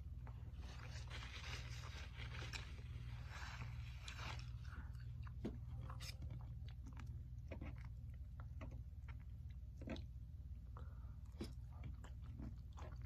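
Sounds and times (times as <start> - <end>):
steady low hum: 0.0 - 13.0
person chewing and smacking: 3.6 - 13.0.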